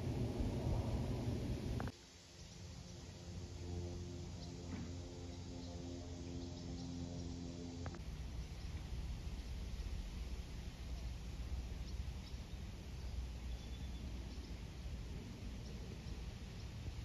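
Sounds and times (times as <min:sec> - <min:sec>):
low outdoor rumble: 0:00.0 - 0:17.0
faint bird chirps: 0:11.8 - 0:14.6.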